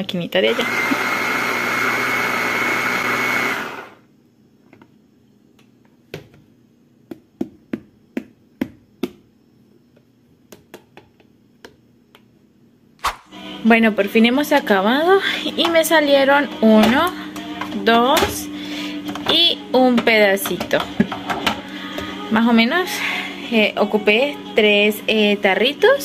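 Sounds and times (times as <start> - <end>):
food processor whining: 0.4 - 4.0.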